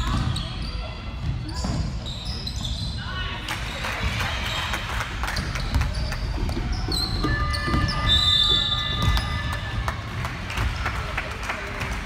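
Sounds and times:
sneakers squeaking on floor: 0.0s - 4.0s, 5.3s - 9.6s
basketball bouncing on court: 5.3s - 10.8s.

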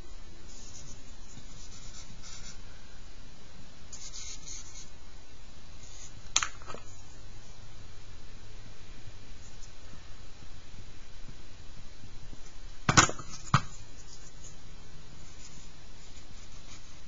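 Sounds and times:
charcoal scratching on paper: 0.5s - 2.6s, 3.9s - 4.9s, 15.2s - 17.0s.

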